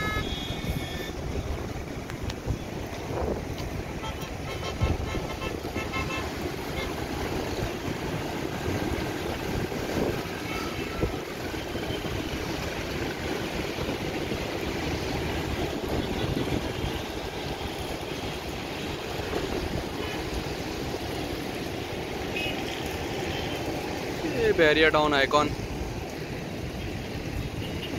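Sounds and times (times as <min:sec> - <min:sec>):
wind across the microphone: 0:00.0 - 0:17.6
distant city traffic hum: 0:00.0 - 0:27.9.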